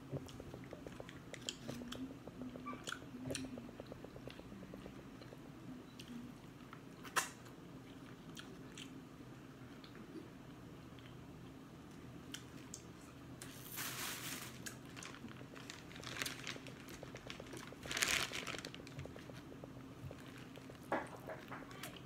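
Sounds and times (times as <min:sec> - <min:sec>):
plastic bag crinkling: 0:13.6 - 0:22.0.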